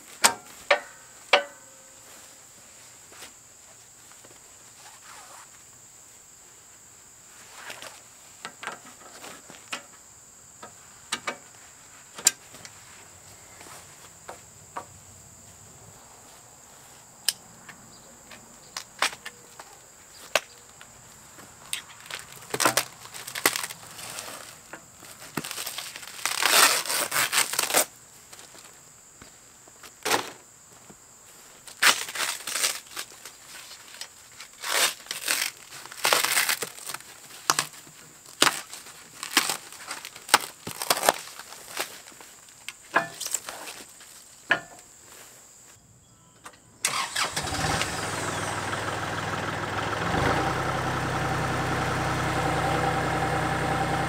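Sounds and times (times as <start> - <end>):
high insect drone: 0.0 - 49.8
packaging crinkling and tearing: 21.7 - 27.9, 31.7 - 42.6.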